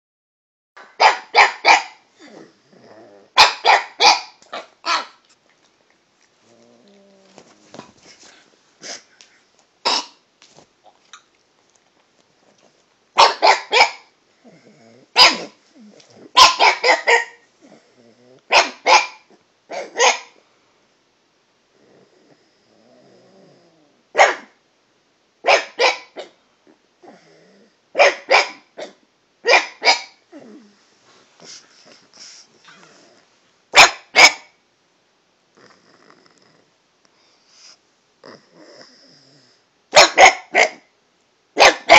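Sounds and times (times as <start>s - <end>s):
dog barking: 0.8s - 2.0s, 3.4s - 5.2s, 9.9s - 10.2s, 13.2s - 14.1s, 15.2s - 15.6s, 16.4s - 17.4s, 18.5s - 20.4s, 24.2s - 24.6s, 25.4s - 26.4s, 28.0s - 30.2s, 33.7s - 34.6s, 39.9s - 40.9s, 41.6s - 41.9s
dog grumbling: 2.2s - 3.4s, 6.4s - 7.9s, 14.4s - 16.4s, 17.6s - 18.6s, 21.7s - 24.0s, 30.3s - 30.8s, 35.6s - 36.7s, 38.2s - 39.6s.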